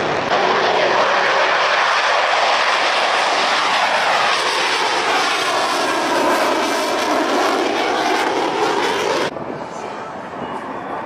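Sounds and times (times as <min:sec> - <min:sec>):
jet engines roaring: 0:00.0 - 0:11.0.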